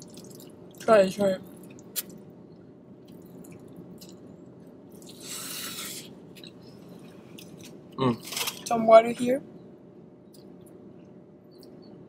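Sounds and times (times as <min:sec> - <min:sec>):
chewing: 0:00.0 - 0:00.9, 0:05.0 - 0:08.4
steady low hum: 0:00.0 - 0:12.0.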